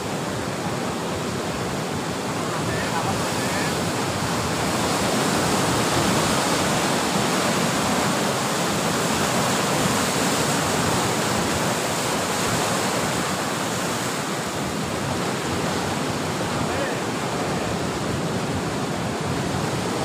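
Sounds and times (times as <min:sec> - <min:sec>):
sea surf breaking on rocks: 0:00.0 - 0:20.0.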